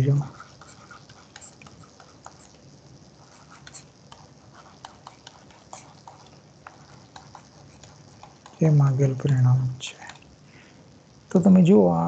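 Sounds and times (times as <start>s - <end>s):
stylus tapping on pen tablet: 3.4s - 8.6s.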